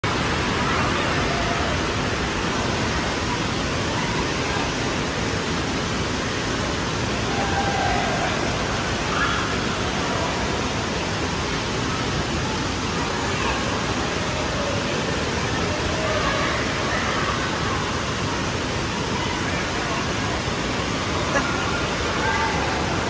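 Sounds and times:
echoing room noise: 0.0 - 23.0
running water: 0.0 - 23.0.

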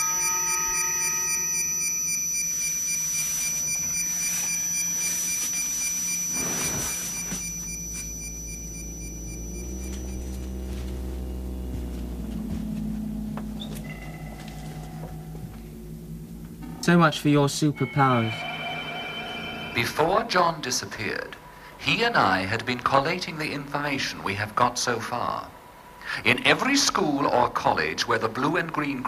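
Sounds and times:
high electronic whistling tones: 0.0 - 11.7, 17.6 - 20.3
low electronic drone: 0.0 - 21.6.

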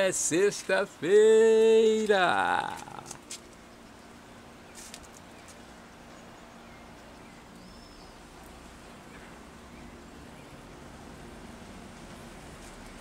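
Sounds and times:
fine rain hiss: 0.0 - 13.0
low steady hum: 0.0 - 13.0
faint bird chirps: 4.7 - 8.2.

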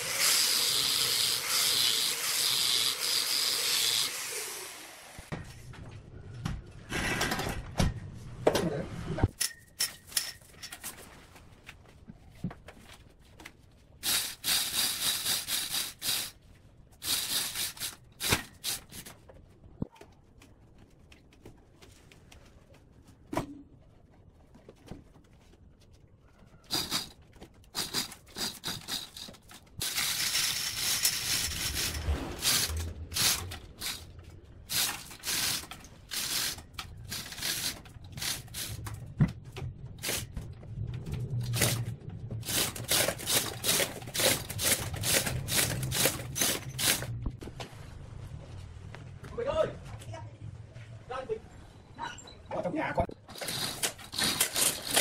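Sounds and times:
hoist chain rattling and clicking: 27.7 - 34.1, 53.3 - 55.0.

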